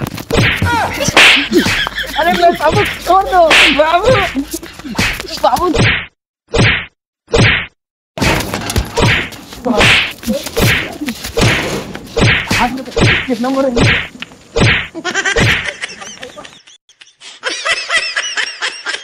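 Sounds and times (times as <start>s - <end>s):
slap and punch hits: 0.0s - 1.8s, 2.6s - 15.6s.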